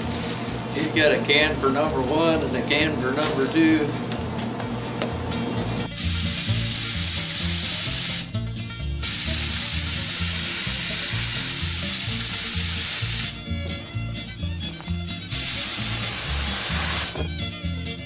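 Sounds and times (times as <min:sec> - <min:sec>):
background music with steady beat: 0:03.7 - 0:18.0
spray gun hissing: 0:06.0 - 0:08.3, 0:09.0 - 0:13.4, 0:15.3 - 0:17.2.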